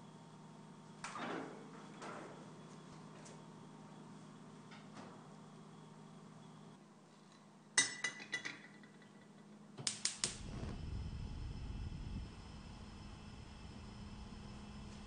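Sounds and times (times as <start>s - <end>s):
low rumble: 10.3s - 14.4s.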